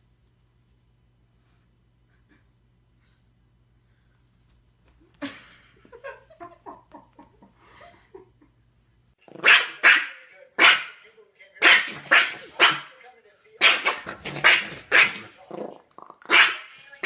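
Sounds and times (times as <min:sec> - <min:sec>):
small dog barking sharply: 0:09.4 - 0:11.0, 0:11.6 - 0:12.9, 0:16.3 - 0:16.7.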